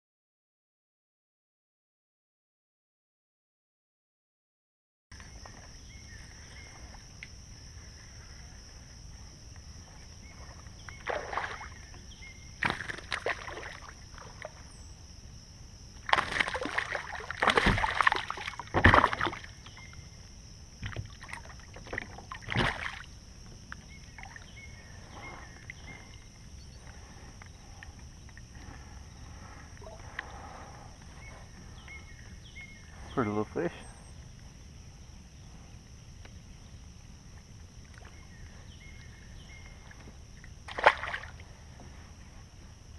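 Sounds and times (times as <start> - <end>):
high insect drone: 5.2 - 42.9
fish splashing in water: 10.3 - 11.9, 12.5 - 14.7, 16.0 - 19.8, 20.8 - 23.2, 40.4 - 41.5.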